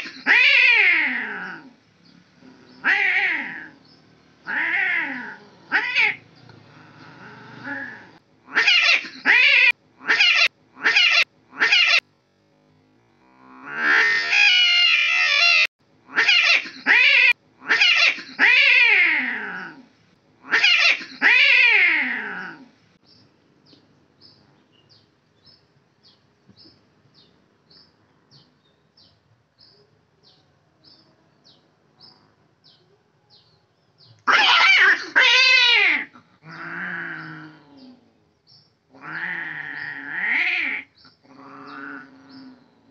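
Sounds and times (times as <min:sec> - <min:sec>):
cats yowling: 0:00.0 - 0:01.8, 0:02.4 - 0:03.8, 0:04.4 - 0:12.0, 0:13.6 - 0:19.9, 0:20.5 - 0:22.7, 0:34.3 - 0:38.1, 0:38.9 - 0:42.9
cat growling: 0:00.0 - 0:03.8, 0:04.4 - 0:08.7, 0:13.2 - 0:16.2, 0:18.4 - 0:20.7, 0:21.3 - 0:22.8, 0:34.3 - 0:38.2, 0:38.9 - 0:42.9.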